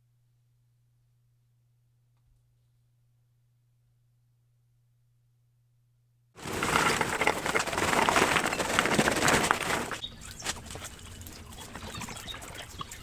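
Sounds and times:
charcoal clattering into trough: 0:06.4 - 0:10.0.

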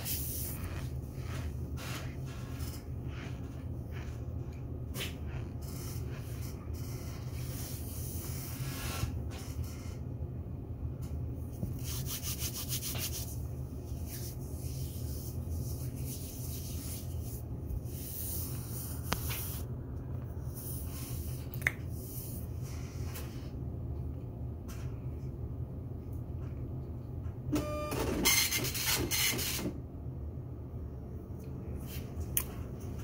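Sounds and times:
scratchy rubbing on microphone: 0:00.0 - 0:10.0, 0:11.6 - 0:19.7
steady low hum: 0:00.0 - 0:27.9, 0:29.7 - 0:33.0.

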